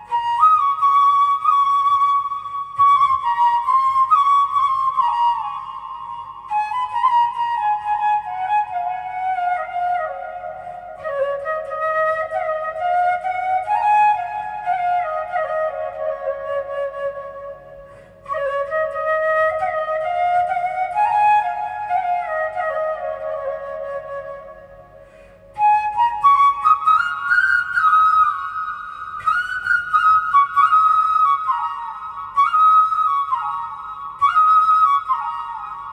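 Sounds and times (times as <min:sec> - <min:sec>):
flute playing slow melody: 0:00.0 - 0:35.9.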